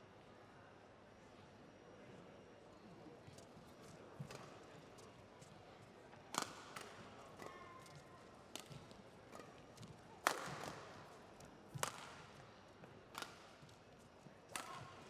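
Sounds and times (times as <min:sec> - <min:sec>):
racket smacking shuttlecock: 0:06.3 - 0:10.8, 0:11.7 - 0:12.2, 0:13.1 - 0:13.8, 0:14.5 - 0:15.0.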